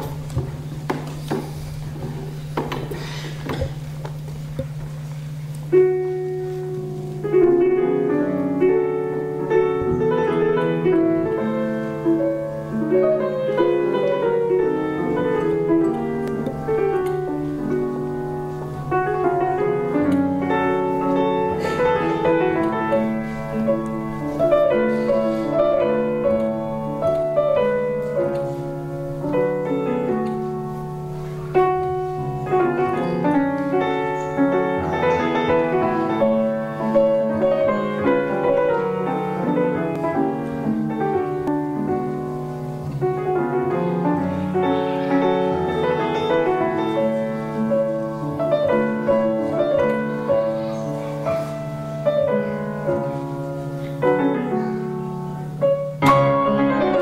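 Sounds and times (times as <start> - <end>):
solo classical piano: 0.0 - 57.0.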